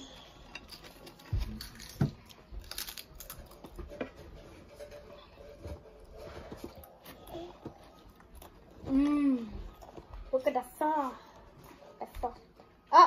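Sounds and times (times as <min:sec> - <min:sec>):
potato chips crackling and crunching: 0:00.6 - 0:03.7.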